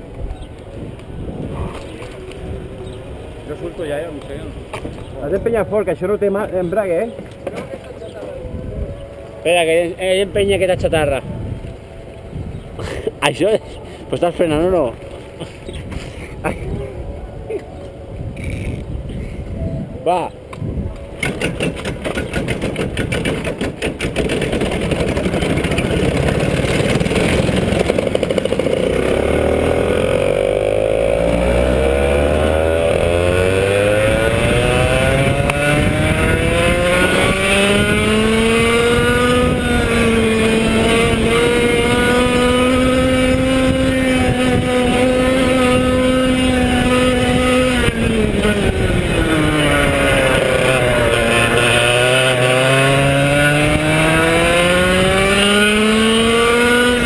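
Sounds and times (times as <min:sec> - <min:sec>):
kart engine revving: 0:21.2 - 0:57.0.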